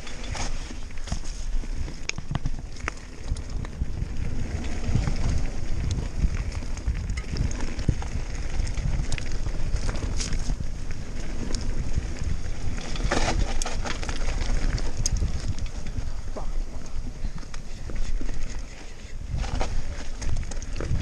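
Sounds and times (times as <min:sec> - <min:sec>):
bike rattling and knocking: 0:00.0 - 0:21.0
tyres crunching over loose rock: 0:00.0 - 0:21.0.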